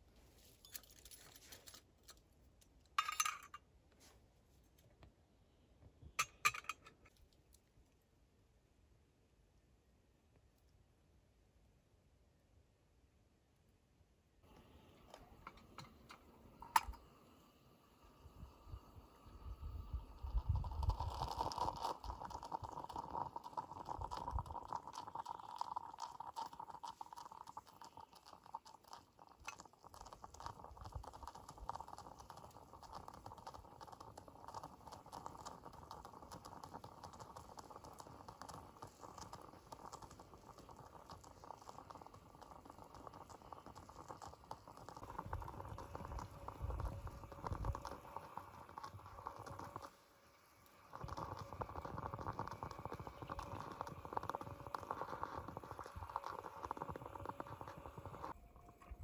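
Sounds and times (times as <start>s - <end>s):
coffee percolator bubbling: 6.2s - 6.9s, 14.4s - 59.0s.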